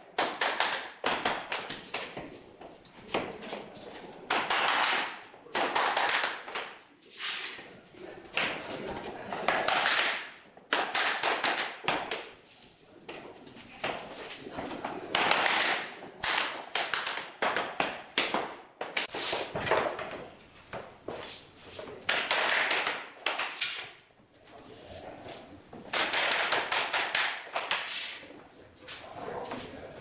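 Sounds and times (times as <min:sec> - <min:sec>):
hammer tapping flooring planks: 0:00.2 - 0:03.6, 0:04.3 - 0:06.8, 0:08.3 - 0:12.4, 0:13.1 - 0:24.0, 0:25.7 - 0:28.2.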